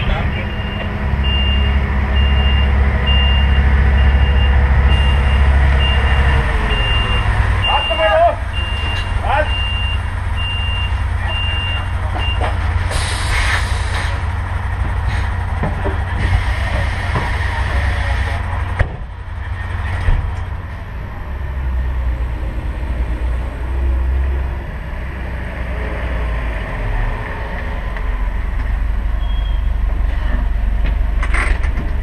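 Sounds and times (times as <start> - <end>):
truck engine rumbling: 0.0 - 32.0
reversing beeper beeps: 0.2 - 12.4, 29.2 - 29.8
air hissing: 12.9 - 14.2.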